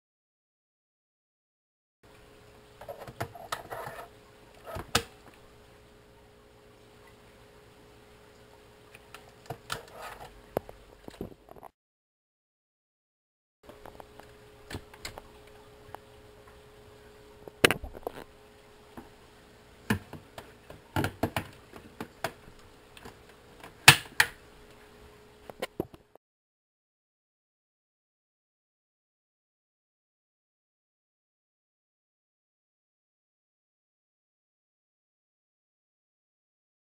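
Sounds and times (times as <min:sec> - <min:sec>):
faint steady hum: 0:02.0 - 0:11.7, 0:13.6 - 0:26.2
plastic canister clicks and knocks: 0:19.9 - 0:20.2, 0:21.0 - 0:22.4.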